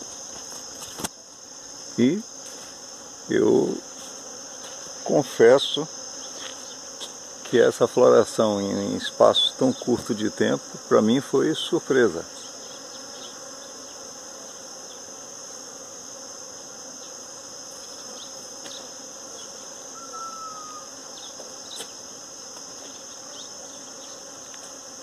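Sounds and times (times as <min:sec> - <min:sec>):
bees buzzing: 0:00.0 - 0:25.0
short falling whistle: 0:20.0 - 0:20.9.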